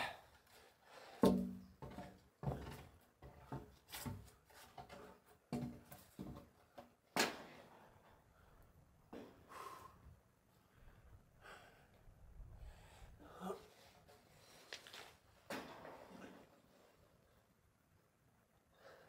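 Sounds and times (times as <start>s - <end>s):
wooden beam knocking and scraping: 1.2s - 7.5s.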